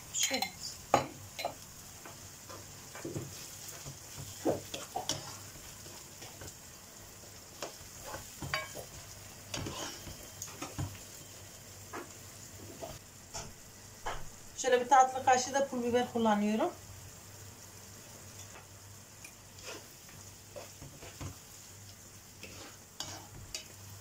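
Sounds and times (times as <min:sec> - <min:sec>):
onions sizzling in a frying pan: 0:00.0 - 0:24.0
spatula scraping a pan: 0:01.4 - 0:06.5, 0:07.5 - 0:11.5, 0:19.5 - 0:23.9.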